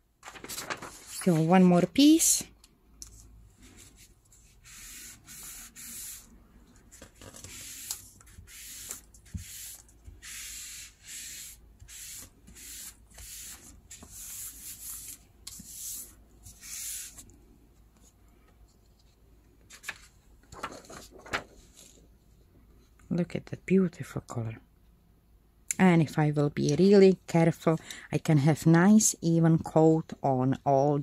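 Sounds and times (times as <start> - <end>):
paper crackling as peeled off: 0.2 - 1.3
hands rubbing paper: 0.3 - 1.6, 3.6 - 6.3, 6.9 - 17.2.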